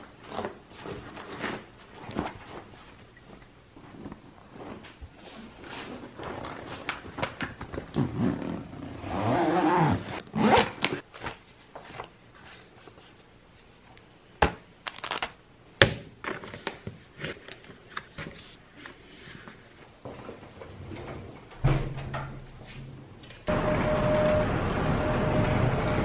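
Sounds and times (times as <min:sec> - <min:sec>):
suitcase zipper rasping: 0:07.9 - 0:11.0.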